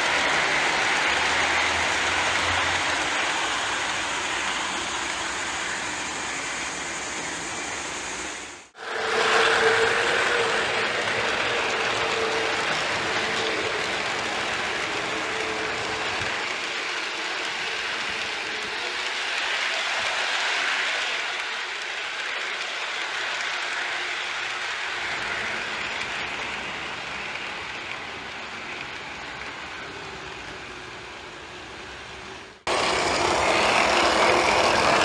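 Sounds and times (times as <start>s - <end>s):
model train wheels rumbling on rails: 0.0s - 35.0s.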